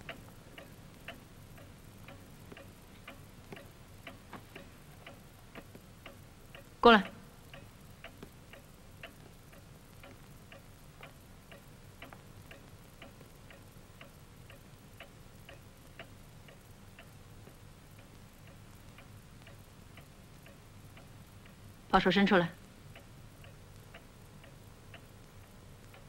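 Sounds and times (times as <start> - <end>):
clock ticking: 0.0 - 26.0.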